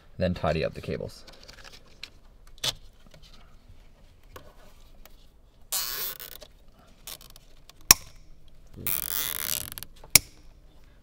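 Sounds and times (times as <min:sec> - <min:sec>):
cable tie zipped tight: 0:05.7 - 0:06.4, 0:08.8 - 0:09.9
wires clicking: 0:05.7 - 0:10.6.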